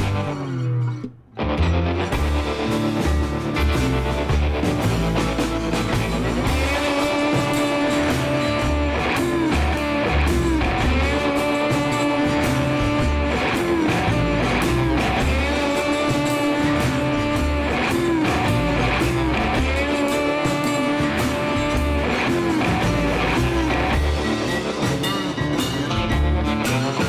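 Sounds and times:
guitar-led background music: 0.0 - 27.0.

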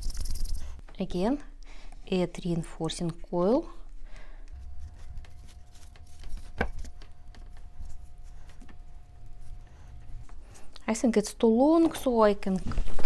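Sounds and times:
fingers smoothing clay: 4.6 - 10.3.

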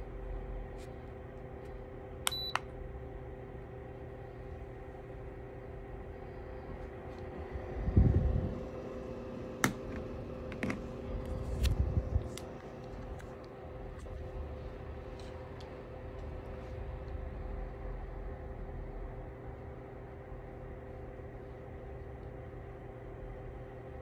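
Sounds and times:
space heater fan humming: 0.0 - 24.0
heater beeps: 2.3 - 2.7.

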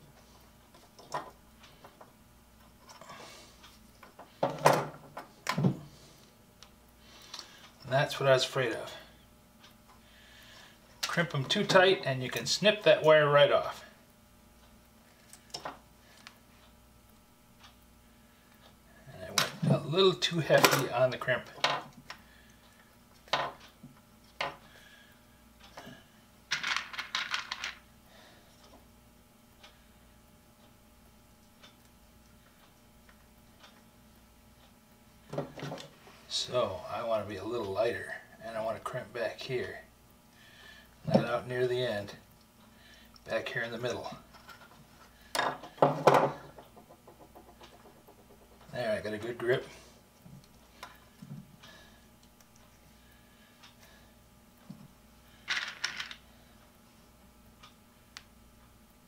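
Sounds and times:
tools knocking on wooden workbench: 45.4 - 48.5.

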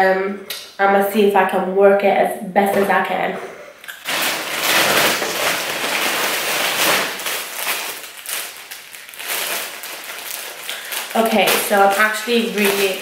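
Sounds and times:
plastic bag crinkling: 3.9 - 13.0.

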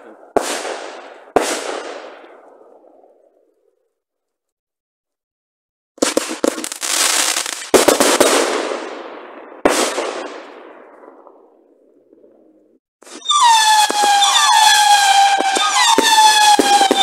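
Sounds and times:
fireworks bursting with hiss: 0.1 - 2.3, 6.0 - 10.7, 13.0 - 17.0.

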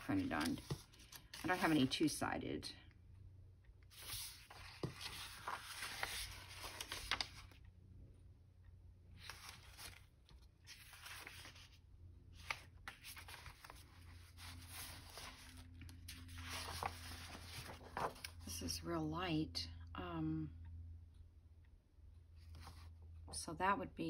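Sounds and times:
paper rustling and sliding: 0.0 - 2.0, 3.9 - 7.6, 9.2 - 11.8, 12.4 - 18.4.

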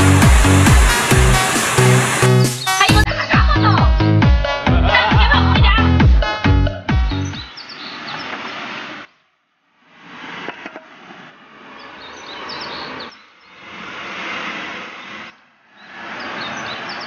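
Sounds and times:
stream and waterfall rushing: 0.0 - 3.0, 7.4 - 17.0
birds chirping: 0.0 - 3.1, 6.9 - 9.2, 11.7 - 13.6, 15.0 - 17.0.

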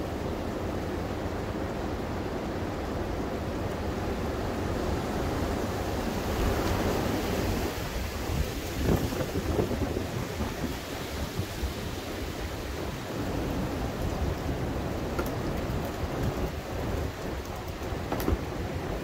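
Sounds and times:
strong wind gusting through trees: 0.0 - 19.0
wind buffeting microphone: 4.9 - 19.0.

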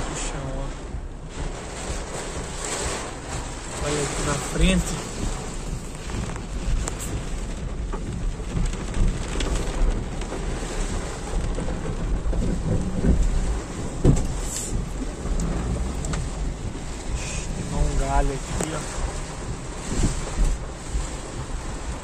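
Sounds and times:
heavy rain on car roof: 0.0 - 22.0
low steady rumble: 0.0 - 22.0
loud thump: 11.7 - 16.8.

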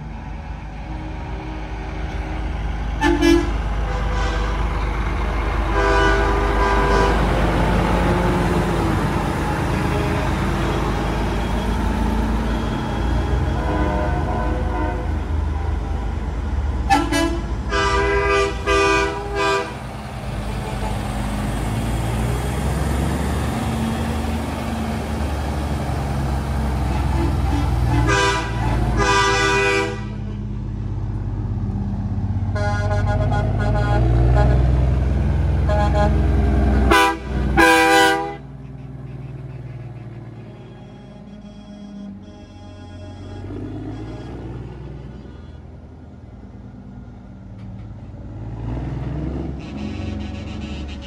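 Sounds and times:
diesel truck engines rumbling: 0.0 - 51.0
truck air horns blowing: 3.0 - 4.9, 5.6 - 9.0, 9.6 - 16.2, 16.8 - 21.1, 26.8 - 30.4, 32.5 - 45.7, 49.5 - 51.0.

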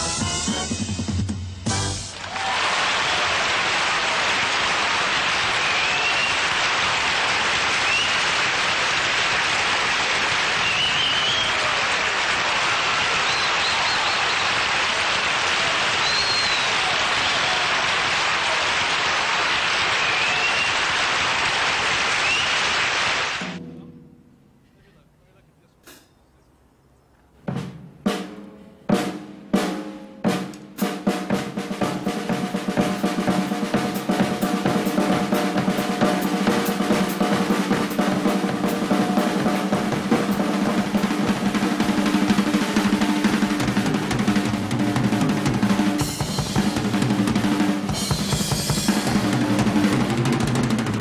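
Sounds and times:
fast drum roll: 0.0 - 23.9, 28.9 - 51.0
audience applauding: 2.0 - 23.5
short high whistles: 5.7 - 6.4, 10.6 - 11.6, 13.2 - 14.5, 16.0 - 16.8, 20.0 - 20.8, 22.2 - 22.7
drum strikes ringing: 23.4 - 24.5, 29.0 - 51.0.

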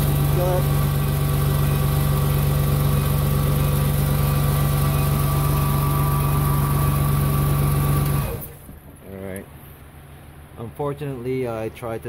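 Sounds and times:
forklift engine idling: 0.0 - 8.8.

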